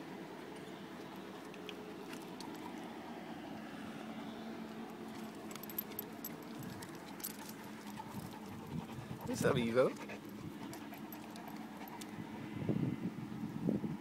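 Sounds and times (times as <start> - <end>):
metal tag jingling: 5.1 - 12.0
dog panting: 5.6 - 12.2.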